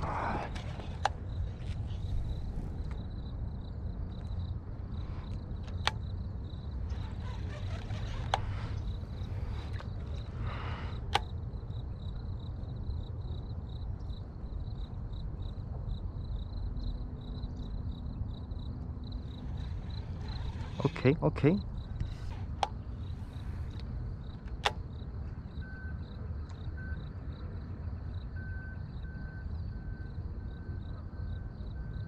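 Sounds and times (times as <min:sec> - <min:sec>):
wind rumbling on microphone: 0:00.0 - 0:12.6
high insect trill: 0:00.0 - 0:32.0.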